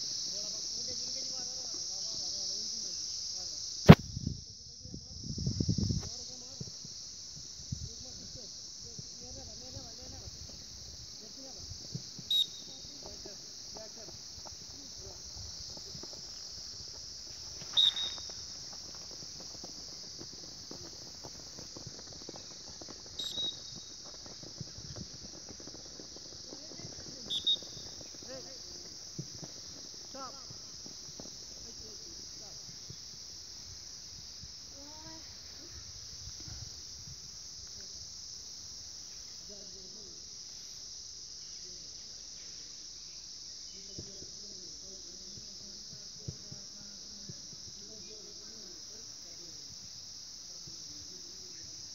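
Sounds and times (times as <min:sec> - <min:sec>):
high insect drone: 0:00.0 - 0:51.9
running footsteps on grass: 0:09.9 - 0:33.5.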